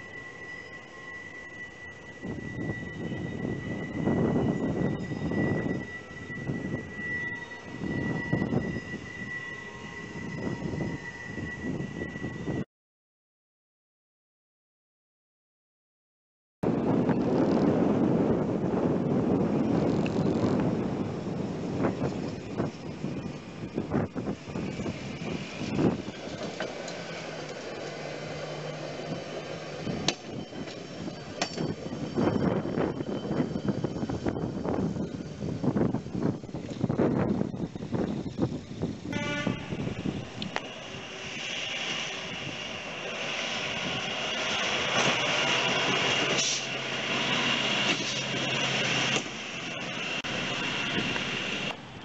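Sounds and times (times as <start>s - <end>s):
wind gust on microphone: 2.0s - 12.6s, 16.6s - 52.0s
truck rolling along rails: 16.8s - 39.1s.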